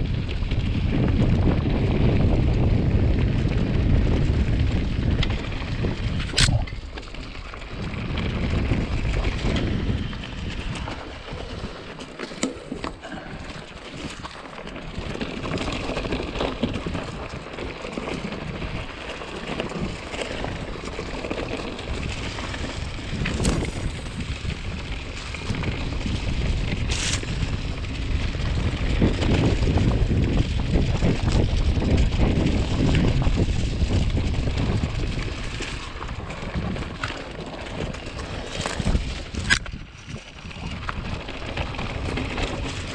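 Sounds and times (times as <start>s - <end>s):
bike rattling: 0.0s - 42.9s
tyres rolling over dirt: 0.0s - 42.9s
wind buffeting microphone: 0.0s - 42.9s.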